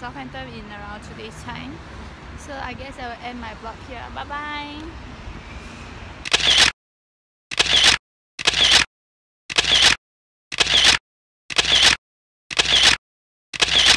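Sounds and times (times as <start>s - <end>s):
camera shutter click: 6.2s - 6.7s, 7.5s - 8.9s, 9.5s - 13.0s, 13.6s - 13.9s.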